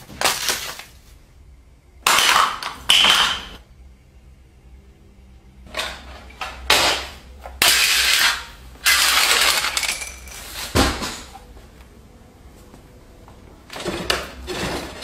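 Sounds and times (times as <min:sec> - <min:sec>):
small hard objects rattling: 0:08.9 - 0:10.5.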